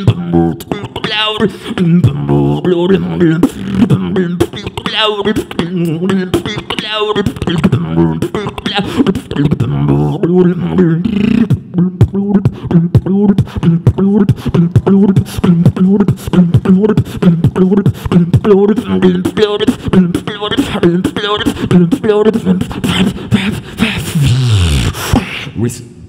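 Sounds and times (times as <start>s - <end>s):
warbling vocal effects: 0.0s - 25.6s
person beatboxing: 0.0s - 25.8s
hummed bass line: 9.4s - 19.2s.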